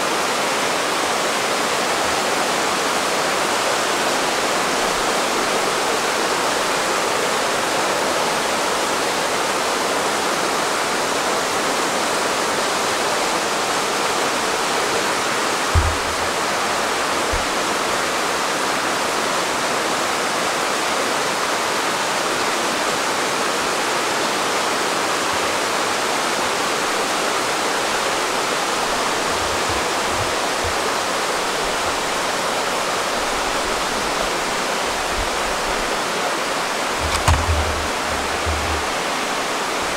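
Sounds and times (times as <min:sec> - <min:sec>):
mountain stream rushing: 0:00.0 - 0:39.9
low thumps: 0:15.7 - 0:17.6, 0:37.0 - 0:39.2.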